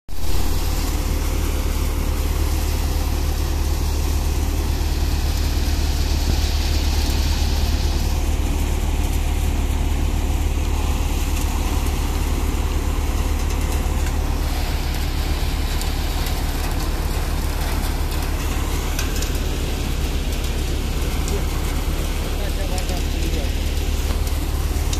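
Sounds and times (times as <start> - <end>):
thresher machine humming: 0.1 - 24.9.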